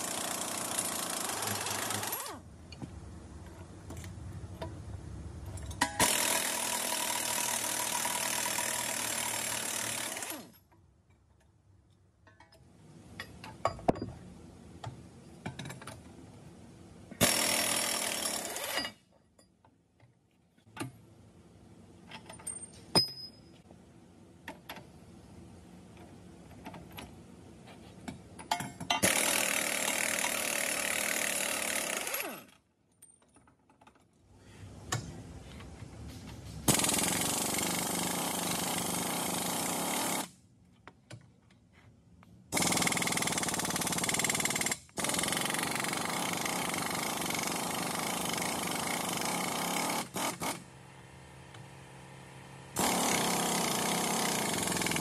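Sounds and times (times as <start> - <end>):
pneumatic impact wrench hammering: 0.0 - 2.4, 5.8 - 10.5, 17.2 - 19.0, 28.5 - 32.6, 36.6 - 40.4, 42.5 - 50.6, 52.8 - 55.0
tools clinking: 22.1 - 23.6, 28.4 - 29.1.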